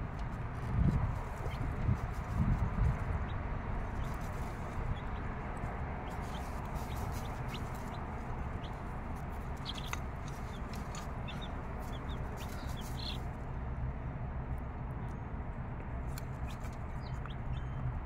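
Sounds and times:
chicks peeping: 0:00.1 - 0:13.4, 0:16.1 - 0:17.7
hen clucking: 0:06.0 - 0:13.2.

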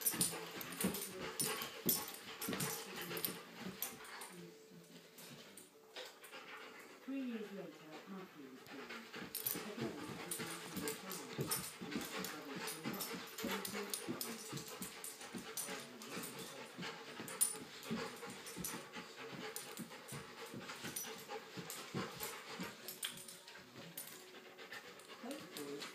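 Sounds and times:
dog panting and whining: 0:00.0 - 0:25.9
paw scuffs: 0:08.0 - 0:25.9.

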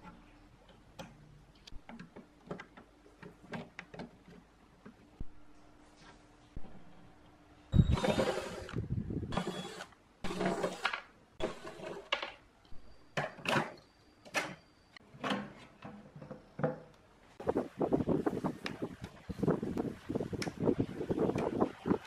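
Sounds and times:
cordless drill motor whine: 0:07.8 - 0:10.9.

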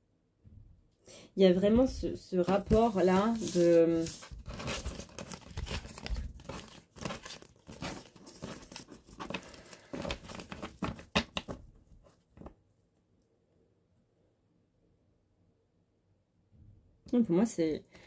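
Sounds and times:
rustling and crinkling handling: 0:01.7 - 0:12.7.

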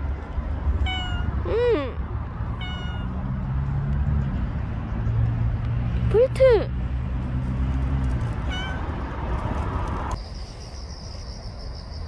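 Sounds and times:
cat meowing: 0:00.8 - 0:01.6, 0:02.6 - 0:03.1, 0:08.5 - 0:08.9.

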